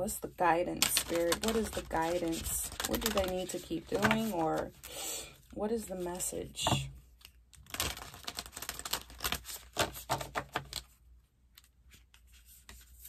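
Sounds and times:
cards being shuffled: 0.8s - 4.9s, 7.2s - 11.0s.

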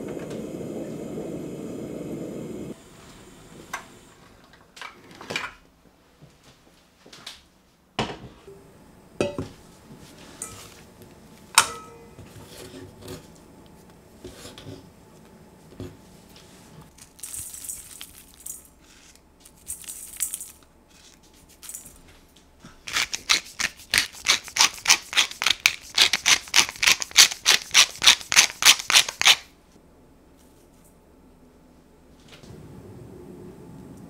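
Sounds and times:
pepper mill grinding: 22.9s - 29.5s.

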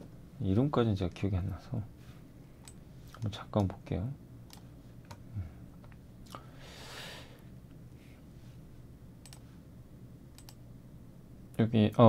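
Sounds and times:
computer mouse clicks: 4.5s - 5.2s, 9.2s - 9.5s, 10.3s - 10.6s.

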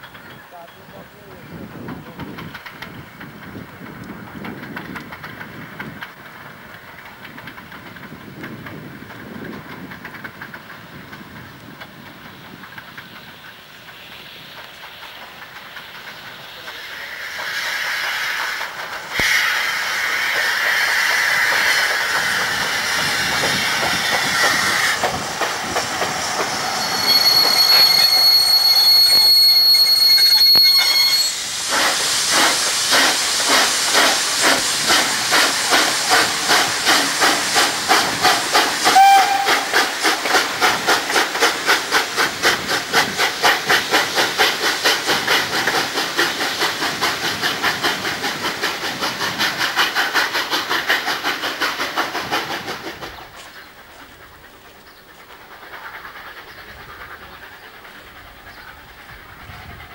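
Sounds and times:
hissing steam: 12.8s - 53.2s
locomotive chuffing: 26.6s - 53.4s
steam whistle: 26.8s - 31.9s, 38.8s - 39.9s.

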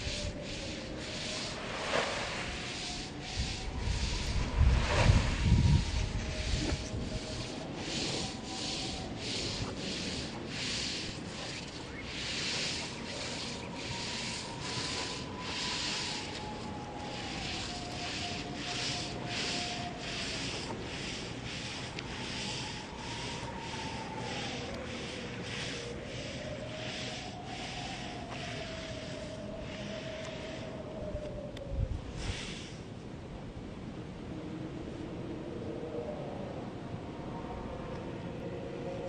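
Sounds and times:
twig broom sweeping stone: 0.0s - 30.7s.

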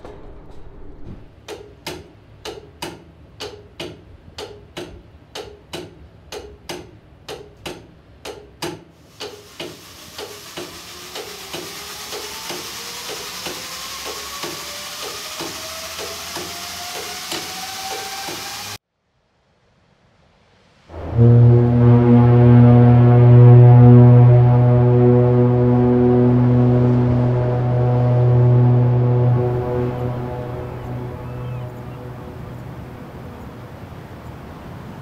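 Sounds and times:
loud hiss: 9.0s - 18.8s
diesel engines droning: 9.2s - 18.8s, 20.9s - 35.0s
whistling tone rising in pitch: 10.9s - 18.8s, 25.3s - 33.5s.

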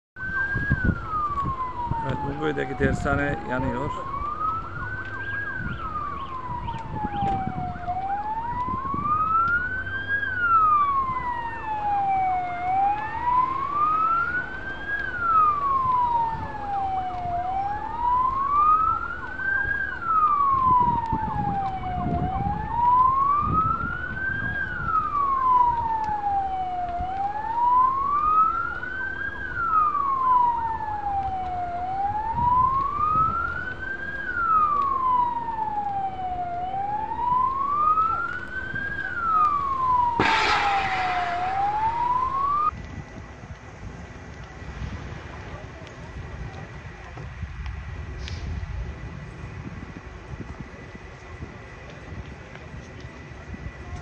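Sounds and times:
siren wailing: 0.2s - 42.8s
low rumbles: 29.5s - 46.8s.

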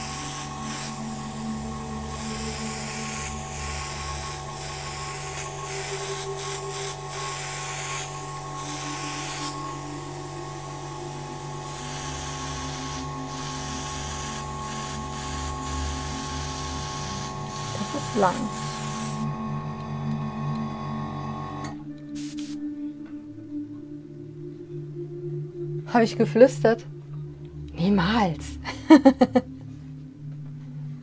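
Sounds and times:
airbrush spraying hiss: 0.0s - 19.3s, 22.1s - 22.6s
steady hum: 0.0s - 22.0s.

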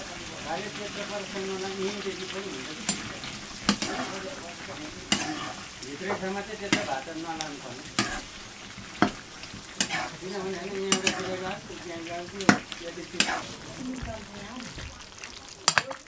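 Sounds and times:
meat sizzling in a pan: 0.0s - 16.0s
utensil scraping and knocking pan: 2.8s - 4.2s, 5.1s - 7.1s, 8.0s - 8.4s, 9.0s - 10.2s, 10.8s - 11.6s, 12.4s - 14.8s.

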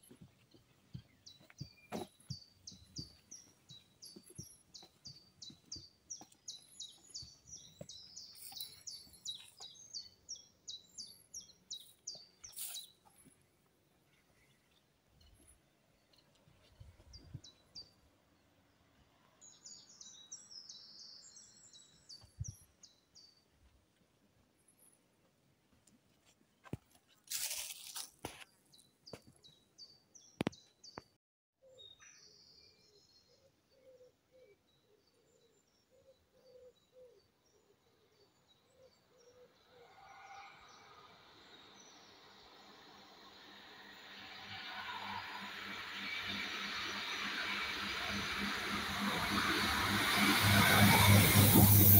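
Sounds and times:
songbird singing faintly: 0.0s - 23.7s, 27.4s - 48.1s
faint birdsong: 0.0s - 25.1s, 27.0s - 51.9s
high bird chirps: 1.3s - 13.0s
approaching train hiss: 39.8s - 51.9s.

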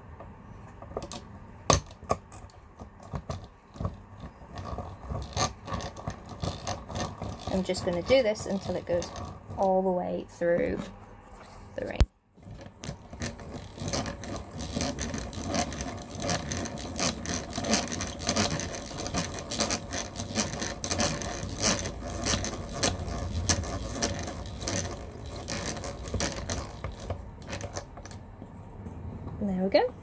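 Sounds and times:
hand drill gears clicking and whirring: 1.7s - 9.9s, 12.4s - 28.2s
drill bit grinding through metal: 3.2s - 9.8s, 12.4s - 27.9s.

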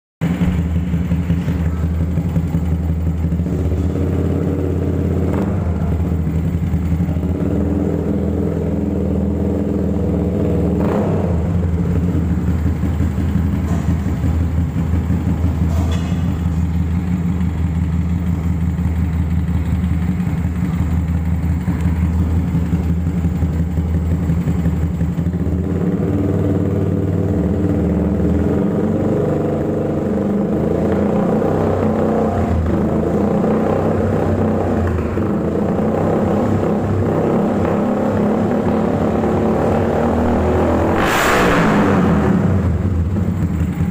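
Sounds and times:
motorcycle engine idling: 0.2s - 40.7s, 42.2s - 43.9s.

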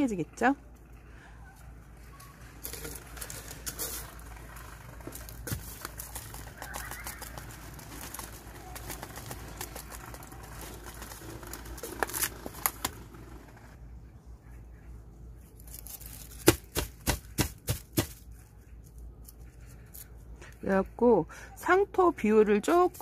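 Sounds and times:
soil and plastic rustling: 2.0s - 13.8s, 15.5s - 20.7s.

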